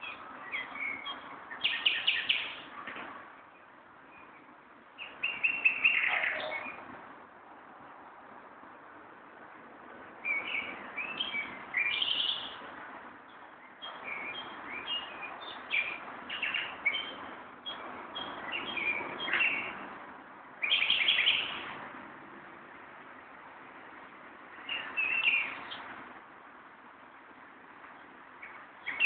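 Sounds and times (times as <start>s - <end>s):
songbirds chirping and whistling: 0.0s - 6.9s, 10.2s - 20.0s, 20.6s - 21.8s, 24.5s - 26.0s, 27.8s - 29.0s
steady background hiss: 0.0s - 29.0s.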